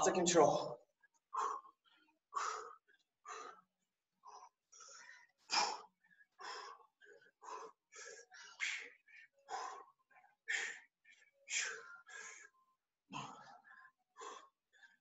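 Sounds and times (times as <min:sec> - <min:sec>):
person breathing hard and fast: 0:01.2 - 0:12.6, 0:13.2 - 0:15.0.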